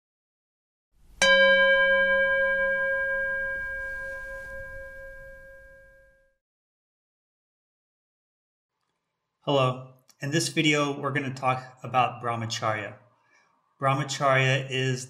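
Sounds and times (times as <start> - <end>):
bell ringing: 1.2 - 6.3.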